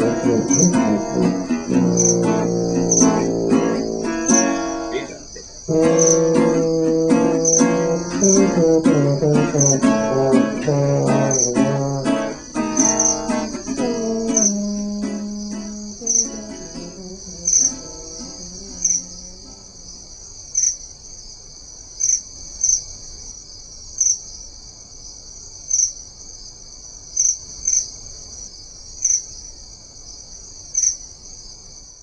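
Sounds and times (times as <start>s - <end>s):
guitar notes: 0.0s - 20.0s
crickets chirring: 0.0s - 32.0s.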